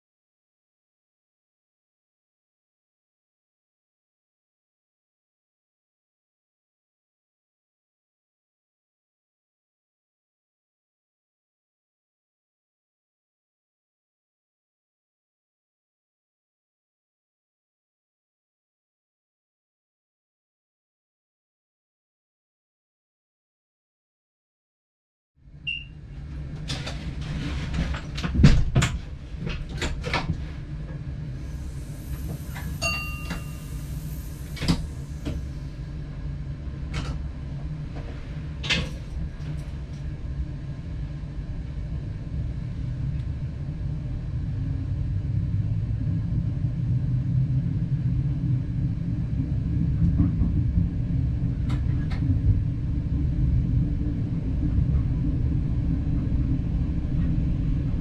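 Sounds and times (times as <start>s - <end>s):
train engine rumble: 25.5s - 58.0s
air hiss: 31.4s - 35.8s
electronic beep: 32.8s - 34.3s.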